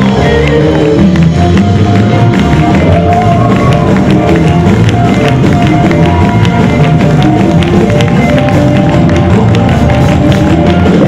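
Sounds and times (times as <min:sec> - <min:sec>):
live gospel band playing: 0:00.0 - 0:11.0.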